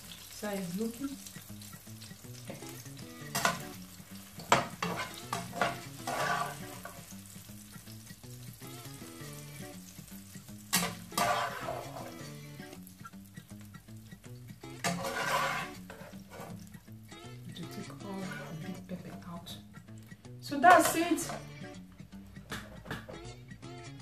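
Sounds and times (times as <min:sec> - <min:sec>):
pan sizzling: 0:00.0 - 0:24.0
metal turner scraping frying pan: 0:01.6 - 0:07.2, 0:10.3 - 0:12.8, 0:14.6 - 0:19.4, 0:20.6 - 0:21.5.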